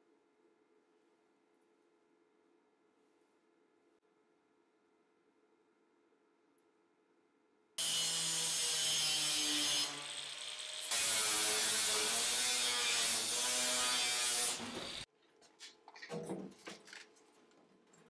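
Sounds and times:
angle grinder cutting steel: 0:07.8 - 0:15.1.

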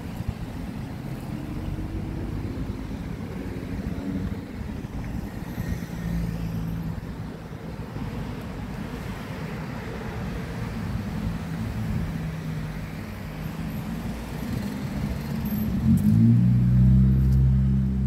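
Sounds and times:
cars driving by: 0:00.0 - 0:18.0.

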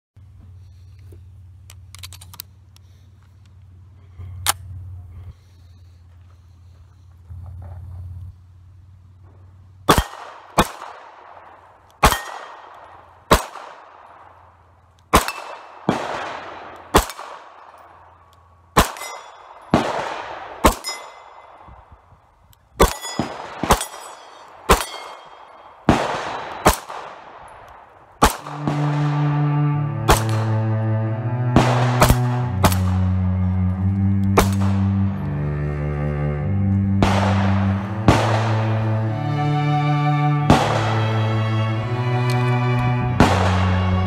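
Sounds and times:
pistol shots with rolling echo: 0:09.8 - 0:21.9, 0:22.8 - 0:30.7, 0:31.4 - 0:33.3, 0:34.4 - 0:35.1, 0:37.0 - 0:39.0, 0:40.5 - 0:41.4, 0:43.1 - 0:44.0
music: 0:28.5 - 0:44.0.

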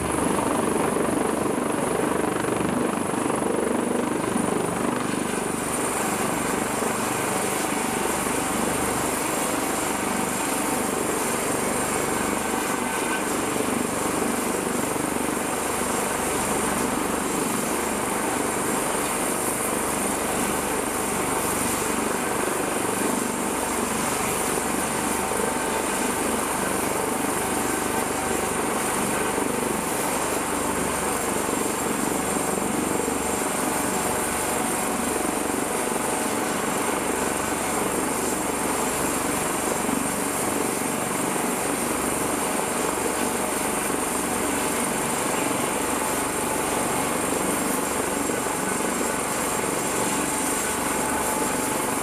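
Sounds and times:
helicopter rotor and turbine: 0:00.0 - 0:52.0.

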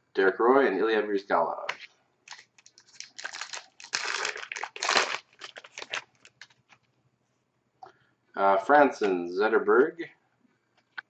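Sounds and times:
card pack wrapper crinkling: 0:02.3 - 0:06.8.

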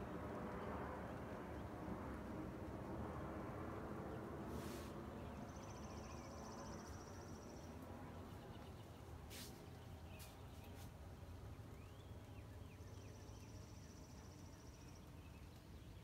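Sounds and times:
rustling hisses: 0:04.5 - 0:05.0, 0:09.3 - 0:10.9.

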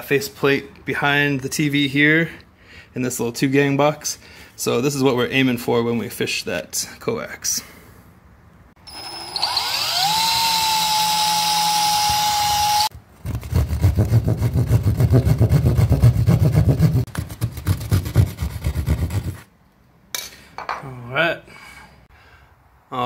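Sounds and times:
cordless drill whine: 0:08.8 - 0:12.9
hand saw cutting drywall: 0:10.6 - 0:19.5.

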